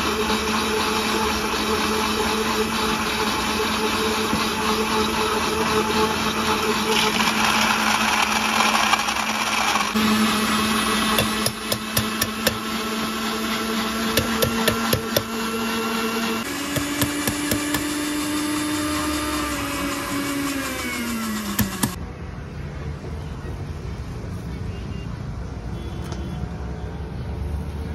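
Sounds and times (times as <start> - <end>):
blender motor running: 0.0 - 22.0.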